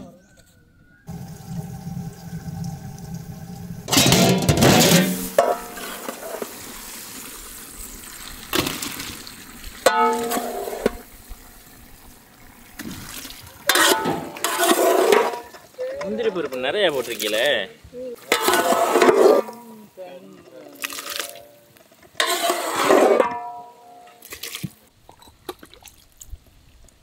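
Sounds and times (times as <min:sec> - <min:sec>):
water splashing into pot: 0:01.1 - 0:15.5, 0:20.7 - 0:21.7.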